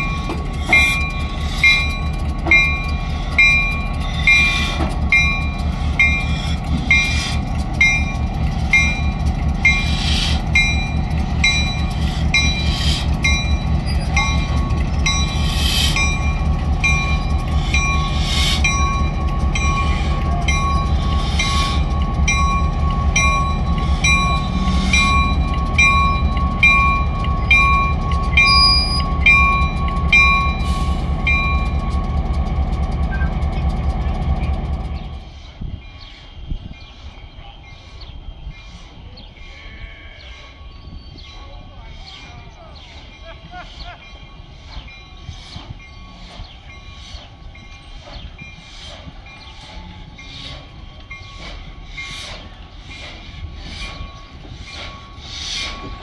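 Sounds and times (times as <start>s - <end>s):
crossing bell ringing: 0.0s - 33.0s, 42.4s - 48.6s
diesel locomotive engine running: 0.0s - 56.0s.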